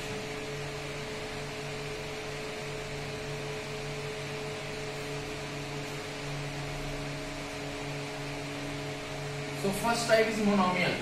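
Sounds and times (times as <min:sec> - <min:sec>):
room hum with hiss and tones: 0:00.0 - 0:11.0.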